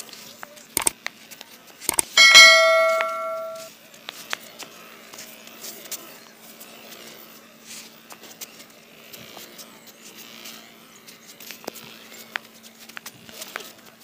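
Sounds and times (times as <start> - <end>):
sharp clicks and crackles: 1.9 - 2.2.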